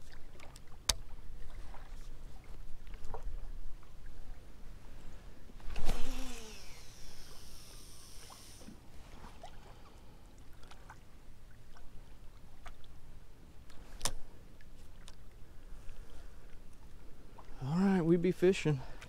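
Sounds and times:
line whirring off reel: 5.6 - 8.8
reel clicks: 5.6 - 8.8
fishing rod swish: 5.6 - 9.4.

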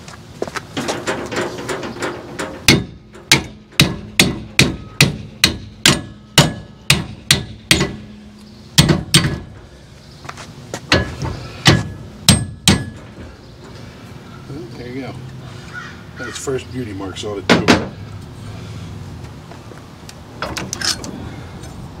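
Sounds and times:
sledgehammer striking steel: 2.4 - 8.1, 8.8 - 9.6, 10.9 - 13.2.

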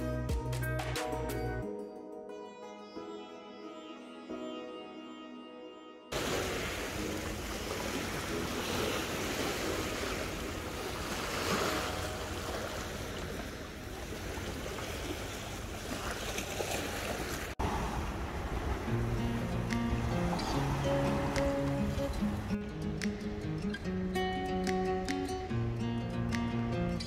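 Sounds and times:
music: 0.0 - 12.8, 18.8 - 27.0
small waves washing on shore: 6.1 - 22.6.

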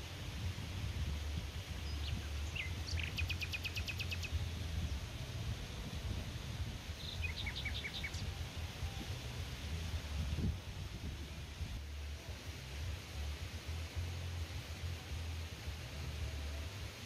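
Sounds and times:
low outdoor rumble: 0.0 - 17.0
bird trill: 1.8 - 4.4, 7.0 - 8.4
birds calling: 1.8 - 4.4, 7.0 - 8.4.

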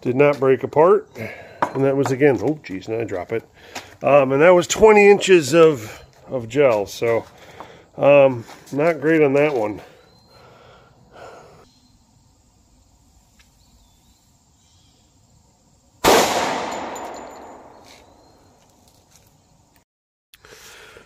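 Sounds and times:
pistol shot: 16.0 - 17.8.

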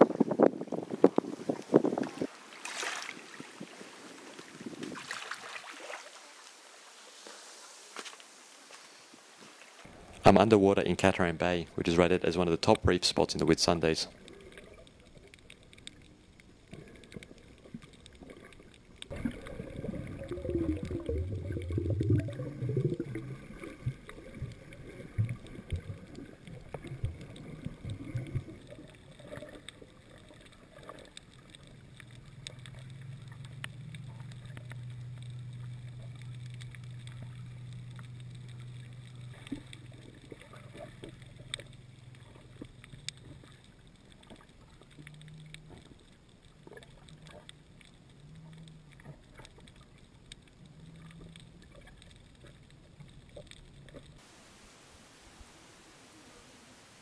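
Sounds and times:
water sloshing and bubbling: 0.0 - 54.7
faint clicks: 14.1 - 19.4, 24.0 - 54.2.

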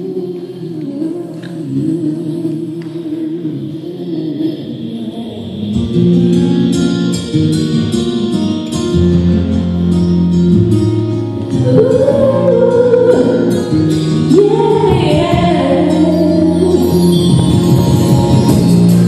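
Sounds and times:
woman singing into a microphone: 0.0 - 6.5, 11.5 - 18.9
instrumental backing with light beat: 6.0 - 19.0.

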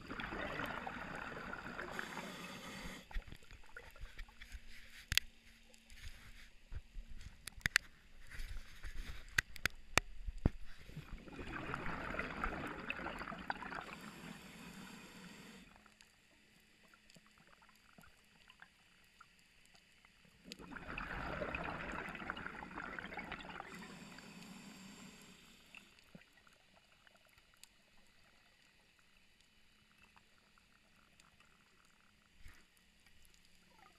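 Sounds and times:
underwater breath bubbling: 0.0 - 4.3, 10.6 - 15.8, 20.5 - 26.2.

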